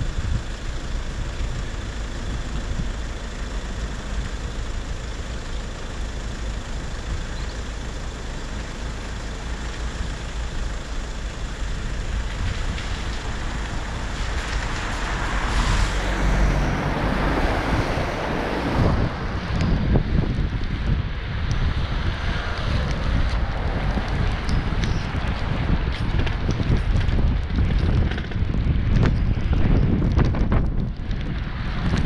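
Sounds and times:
traffic on wet road: 0:00.0 - 0:32.0
wind buffeting microphone: 0:11.5 - 0:32.0.

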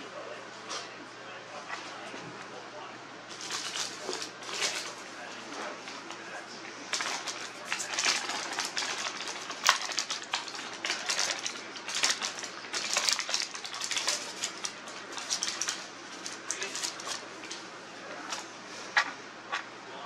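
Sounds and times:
paper rustling and crinkling: 0:03.3 - 0:19.1.

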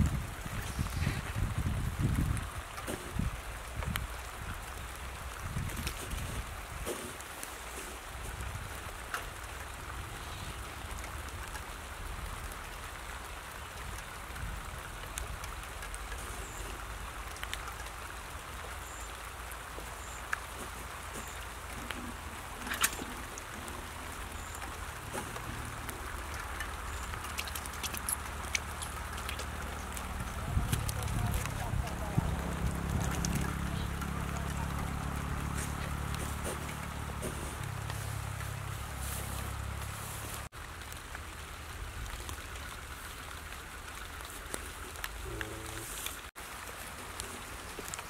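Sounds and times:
wind on microphone: 0:00.0 - 0:07.1, 0:29.0 - 0:39.5
light crackling patter: 0:00.0 - 0:48.0.

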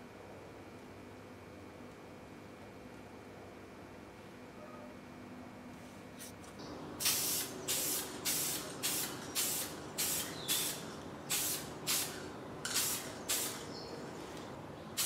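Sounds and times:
spray paint can hissing: 0:07.0 - 0:13.9.

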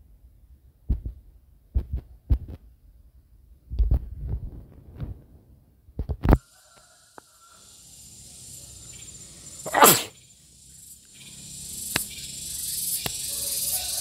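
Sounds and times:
cicada drone: 0:06.4 - 0:14.0.

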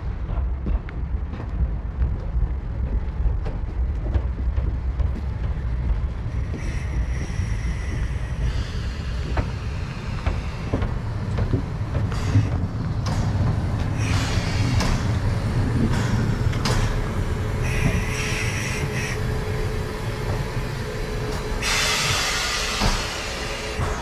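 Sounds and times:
steam train rumbling: 0:00.0 - 0:24.0.

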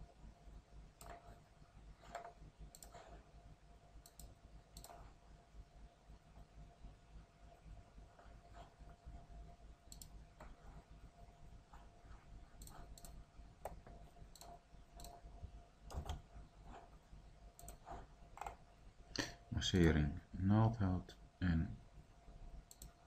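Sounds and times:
low room hum: 0:00.0 - 0:23.0
computer mouse clicks: 0:01.0 - 0:01.4, 0:02.0 - 0:03.2, 0:04.0 - 0:05.2, 0:09.8 - 0:10.8, 0:12.5 - 0:18.6, 0:22.6 - 0:23.0.

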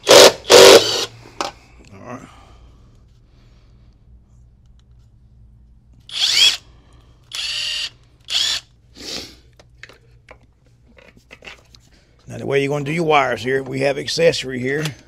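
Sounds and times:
impact driver motor whining: 0:00.0 - 0:01.1, 0:06.1 - 0:06.6, 0:07.3 - 0:08.7.

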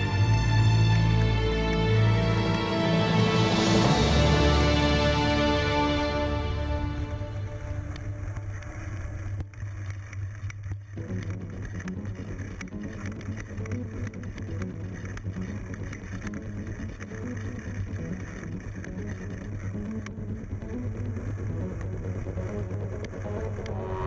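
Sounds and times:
bike riding low rumble: 0:06.2 - 0:24.0
bike rattling clicks: 0:07.8 - 0:23.8.

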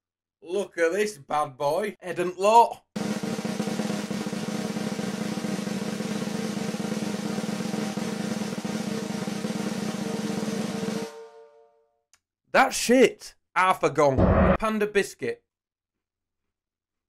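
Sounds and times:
snare drum roll: 0:03.0 - 0:11.2.

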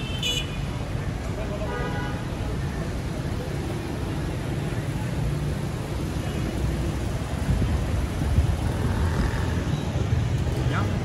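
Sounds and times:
vehicle engines running: 0:02.3 - 0:11.0.

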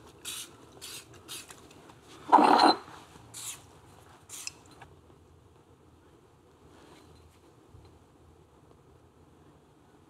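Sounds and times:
aerosol spray can hissing: 0:00.2 - 0:01.5.

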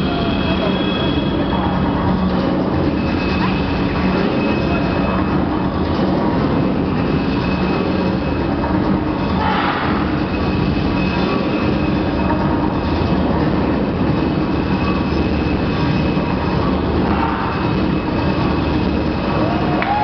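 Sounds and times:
crowd noise in arena: 0:00.0 - 0:20.0.

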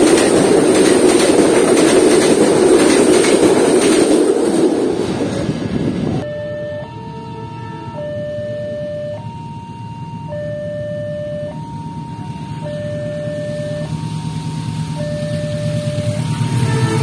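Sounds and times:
train rumble: 0:00.0 - 0:17.0
two-tone warning siren: 0:06.2 - 0:17.0.

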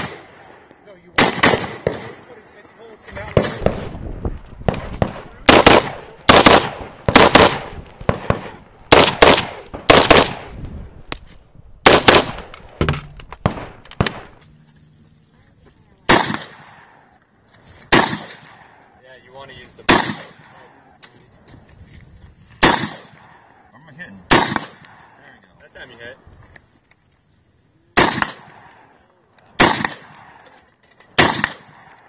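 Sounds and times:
rifle shots: 0:00.0 - 0:02.3, 0:04.6 - 0:10.6, 0:11.8 - 0:14.4, 0:16.1 - 0:17.0, 0:17.9 - 0:18.8, 0:19.9 - 0:20.7, 0:22.6 - 0:23.5, 0:24.3 - 0:25.2, 0:28.0 - 0:28.8, 0:29.6 - 0:32.0.

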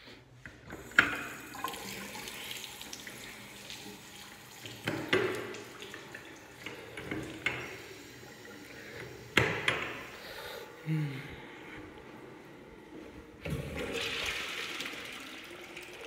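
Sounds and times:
water gushing into basin: 0:00.8 - 0:10.2, 0:13.5 - 0:16.0.

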